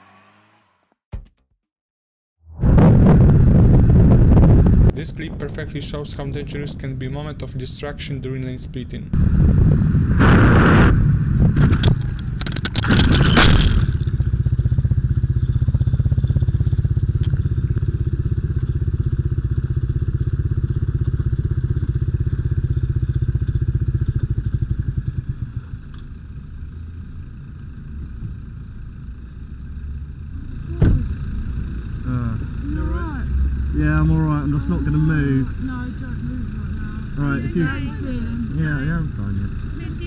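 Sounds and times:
motorcycle crashing and scraping: 0.0s - 1.0s, 10.9s - 14.4s
motorcycle engine running: 9.2s - 40.0s.

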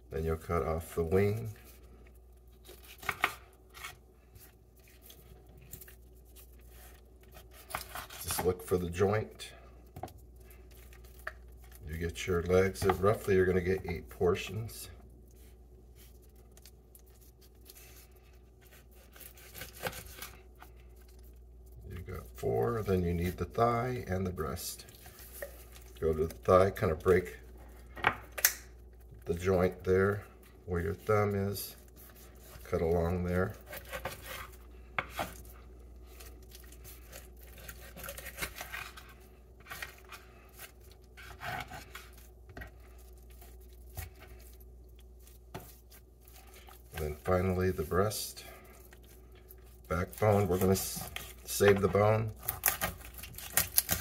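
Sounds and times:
raw chicken being cut and handled: 0.2s - 14.7s, 15.3s - 54.0s
knife cutting raw chicken: 18.6s - 20.4s, 50.0s - 54.0s.

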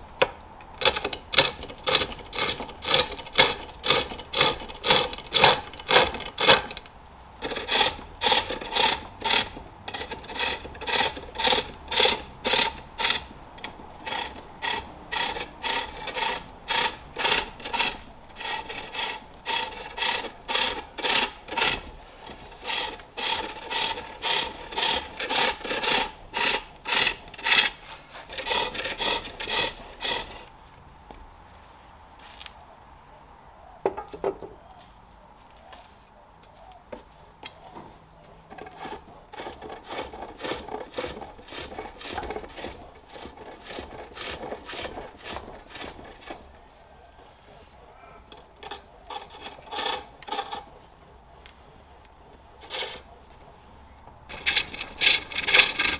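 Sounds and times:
hook tool rasping wood on lathe: 0.8s - 30.5s, 38.5s - 46.6s, 48.2s - 51.7s, 52.3s - 53.4s, 54.3s - 55.9s.

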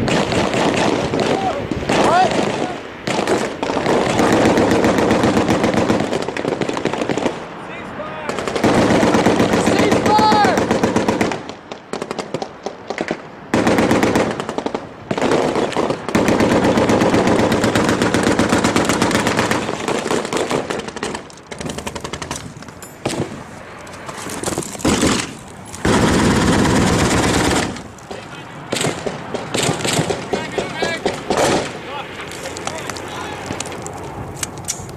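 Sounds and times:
machine-gun fire bursts: 0.0s - 7.4s, 8.3s - 23.3s, 24.8s - 27.9s, 28.7s - 31.8s
single gunshots: 28.7s - 31.8s.

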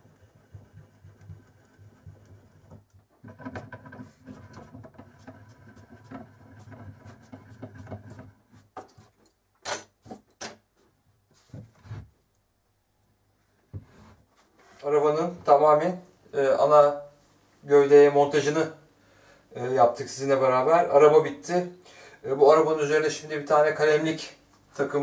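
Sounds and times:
sharp clicks and knocks: 0.5s - 10.6s.

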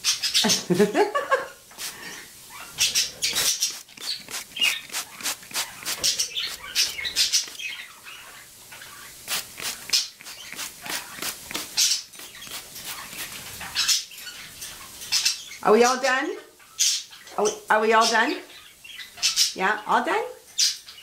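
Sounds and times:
parrot wings flapping: 3.2s - 7.6s, 9.2s - 13.8s.

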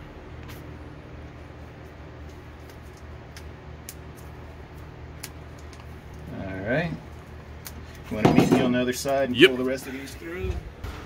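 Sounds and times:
low background hum: 0.0s - 11.0s
wires clicking when handled: 1.3s - 6.3s.

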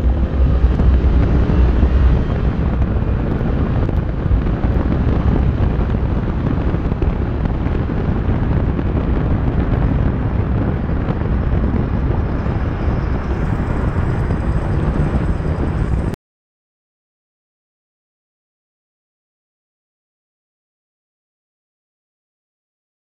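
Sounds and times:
car engine running: 0.0s - 16.2s
wind and road noise: 0.0s - 16.2s.

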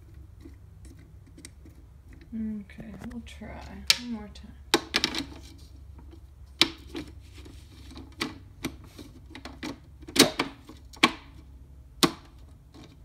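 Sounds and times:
plastic trays clacking: 2.7s - 13.0s.

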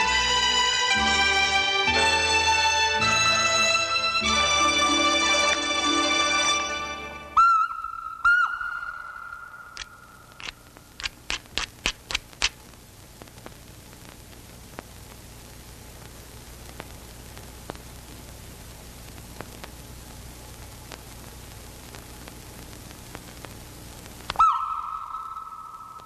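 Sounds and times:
soundtrack hiss: 0.0s - 26.0s
sharp clicks: 9.3s - 12.6s
faint ticks: 16.7s - 18.4s, 19.0s - 19.8s.

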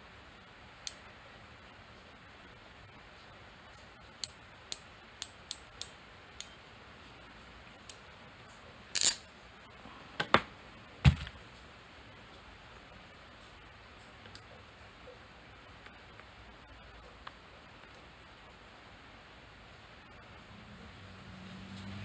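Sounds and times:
ratcheting crimper clicking: 9.0s - 9.2s.

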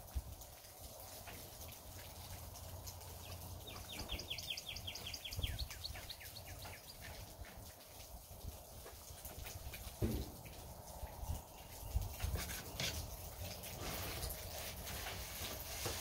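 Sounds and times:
faint rain patter: 0.0s - 16.0s
bird singing a rapid trill: 3.6s - 7.0s.

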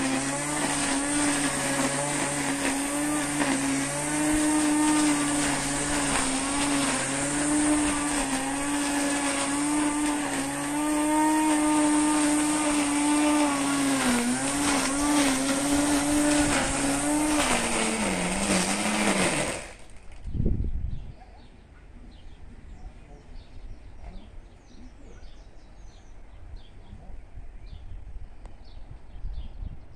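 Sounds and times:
string trimmer motor: 0.0s - 20.3s.

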